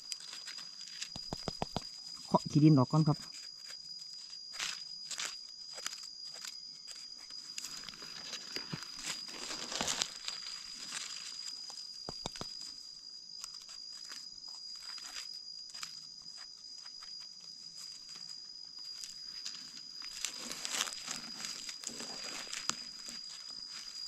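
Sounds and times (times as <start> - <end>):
high insect whine: 0.0 - 24.0
knife scraping gravelly soil: 3.4 - 11.7, 18.8 - 24.0
dry leaves crackling: 7.4 - 11.9, 18.9 - 24.0.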